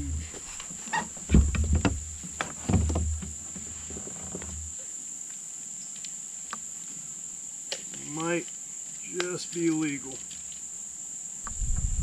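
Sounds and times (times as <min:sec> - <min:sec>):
insects trilling: 0:00.0 - 0:12.0
knocks: 0:01.3 - 0:03.3
low rumble: 0:11.5 - 0:12.0.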